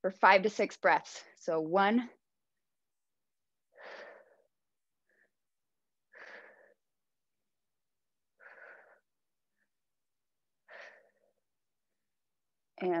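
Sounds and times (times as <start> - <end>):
woman breathing forcefully: 3.6 - 7.0, 8.2 - 9.8, 10.6 - 11.5.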